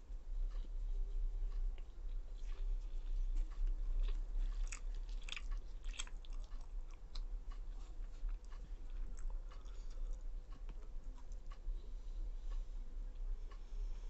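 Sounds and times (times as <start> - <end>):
steady low hum: 0.0 - 14.0
close-up chewing: 1.5 - 11.6.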